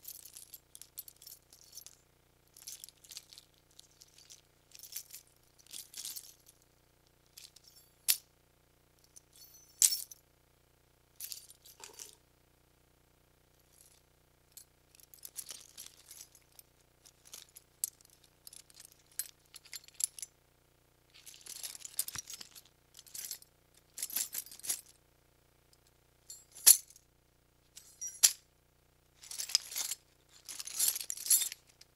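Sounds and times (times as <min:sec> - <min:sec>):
keys jingling on a key ring: 0:02.6 - 0:06.6, 0:07.4 - 0:08.2, 0:09.3 - 0:10.2, 0:11.2 - 0:12.2, 0:15.0 - 0:20.2, 0:21.2 - 0:24.9, 0:26.3 - 0:27.0, 0:27.8 - 0:28.4, 0:29.2 - 0:31.9
sharp metal key clinks: 0:11.4 - 0:12.2, 0:26.3 - 0:26.9, 0:27.8 - 0:28.4.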